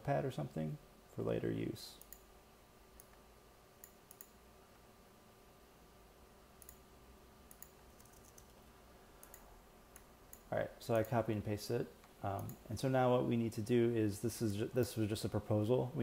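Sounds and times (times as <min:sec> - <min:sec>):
faint electrical hum: 0:00.0 - 0:16.0
keyboard and mouse clicks: 0:03.8 - 0:04.4, 0:06.6 - 0:06.8, 0:07.5 - 0:11.2.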